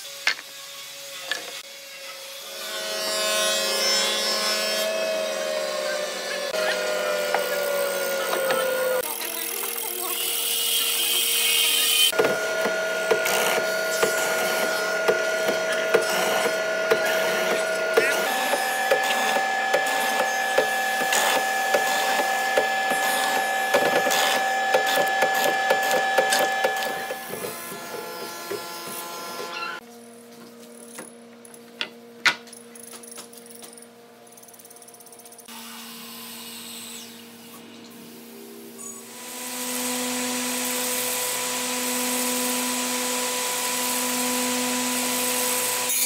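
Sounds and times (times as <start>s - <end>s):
band saw cutting wood: 0.3s - 29.8s, 39.0s - 46.0s.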